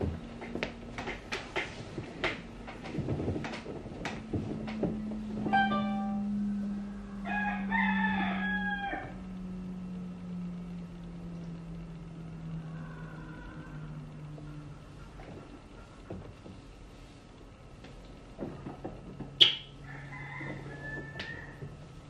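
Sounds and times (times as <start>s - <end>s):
steady low hum: 0.0s - 22.0s
rooster crowing: 6.5s - 9.7s, 12.4s - 14.7s, 19.7s - 22.0s.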